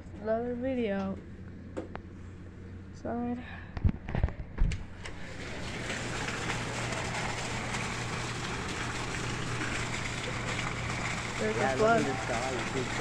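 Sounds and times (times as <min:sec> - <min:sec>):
low steady hum: 0:00.0 - 0:13.0
heavy rain pouring: 0:05.1 - 0:13.0.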